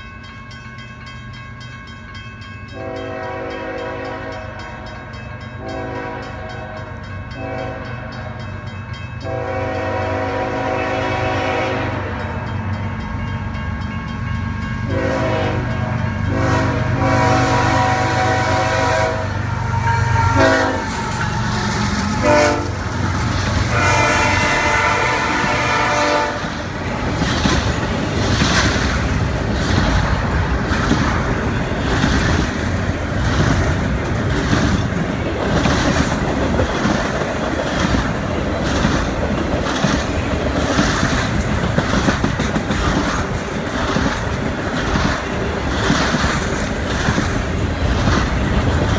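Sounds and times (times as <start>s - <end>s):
train wheels clacking on rails: 0.0s - 48.9s
locomotive horn blasts: 2.7s - 5.0s, 5.6s - 8.4s, 9.2s - 12.6s, 14.9s - 23.0s, 23.6s - 26.7s
locomotive rumble: 2.8s - 48.9s.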